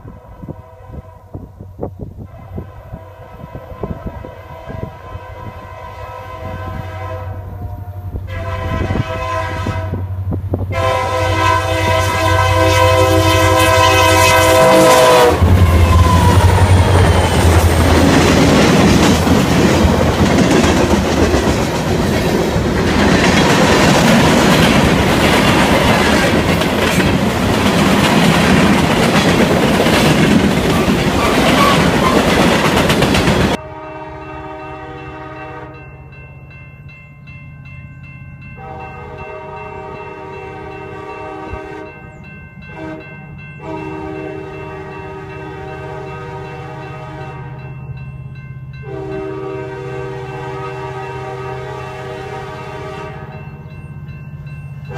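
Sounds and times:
train air horn: 0.0 - 17.8, 33.5 - 35.9, 38.6 - 47.7, 48.8 - 53.4
distant train horn: 0.0 - 20.8, 29.9 - 36.3, 38.5 - 48.0, 48.7 - 54.1
locomotive engine rumble: 4.8 - 33.8
freight cars clickety-clack: 16.0 - 33.6.

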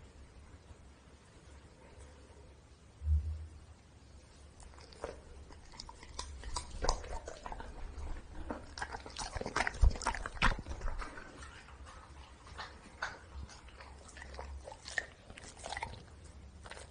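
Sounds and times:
dog chewing wet smacking: 4.6 - 16.9.

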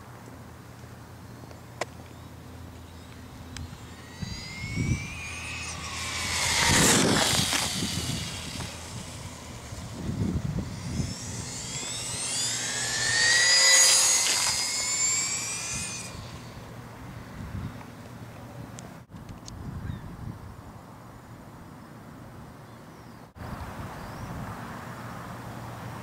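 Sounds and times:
rc truck motor whining: 2.1 - 16.9.

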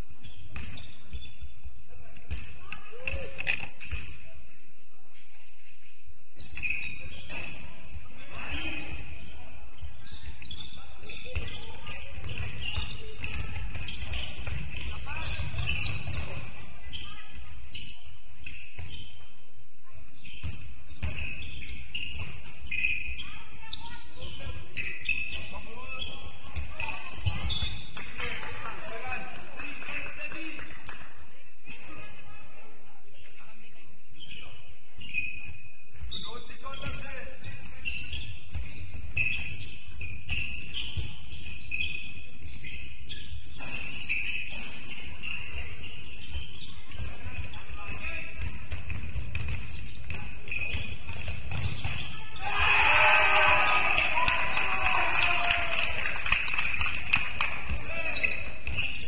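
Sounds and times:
ball bouncing: 0.5 - 1.3, 2.2 - 4.2, 10.0 - 17.1, 26.5 - 29.4, 46.2 - 52.3, 56.7 - 59.0
shoes squeaking: 5.2 - 29.3, 34.2 - 54.6, 56.5 - 59.0
basketball bouncing on floor: 11.2 - 16.5, 46.9 - 52.2.

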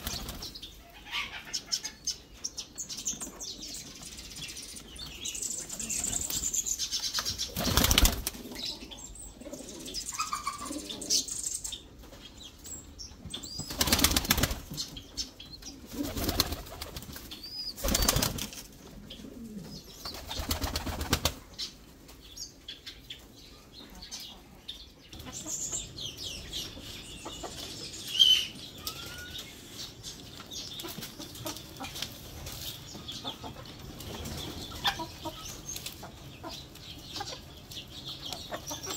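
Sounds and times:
pigeon wings flapping: 7.6 - 8.4, 13.6 - 14.7, 15.9 - 17.2, 17.8 - 18.6, 20.1 - 21.4
high bird calls: 25.2 - 31.6.

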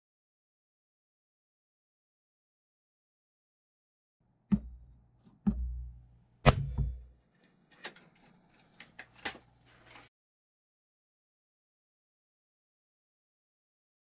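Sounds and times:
sharp knocks: 4.5 - 7.1.

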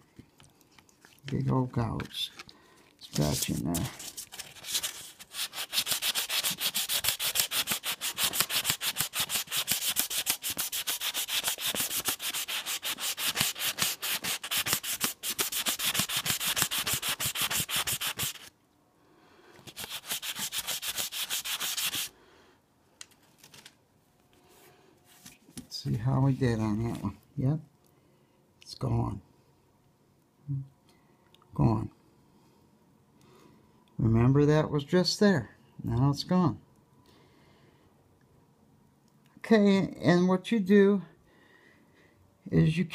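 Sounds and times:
wet sandpaper rasping on metal: 5.3 - 18.5, 19.7 - 22.1.

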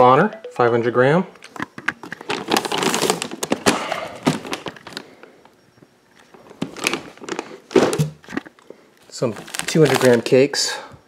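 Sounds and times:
plastic wrapping crinkling: 2.0 - 5.2, 6.2 - 10.5.

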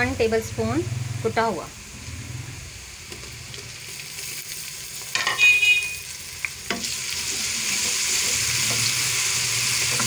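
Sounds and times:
paste sizzling in hot oil: 2.7 - 10.0.

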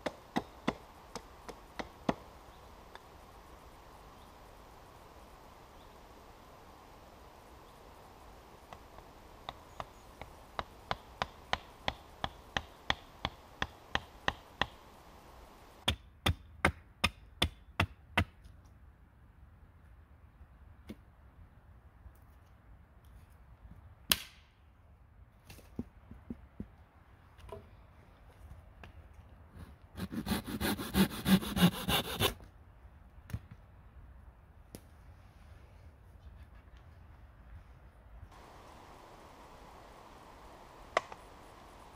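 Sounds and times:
hatchet chopping wood: 0.0 - 2.2, 15.8 - 18.4
blade rasping into wooden pole: 29.6 - 32.4.

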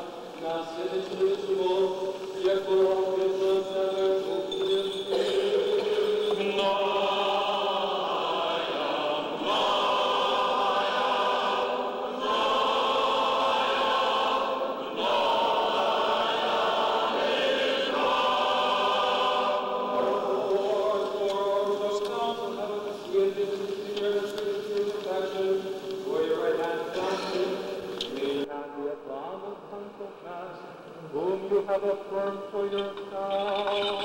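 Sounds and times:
choir chanting: 5.1 - 23.6.

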